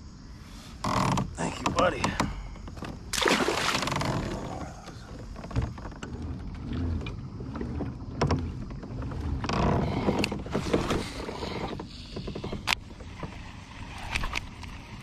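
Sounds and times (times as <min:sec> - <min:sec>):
light water sounds: 0:02.7 - 0:15.0
fish splashing into water: 0:03.1 - 0:04.5.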